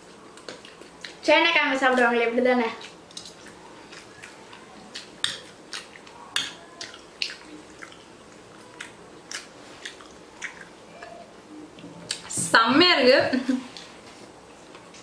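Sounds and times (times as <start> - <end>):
chewing clicks: 2.8 - 11.2
lip smacks: 2.8 - 11.2.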